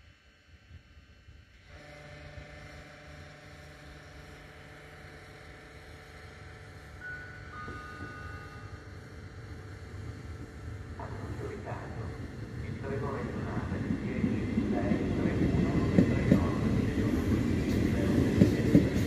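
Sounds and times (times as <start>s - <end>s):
electric train hum: 0.0s - 19.0s.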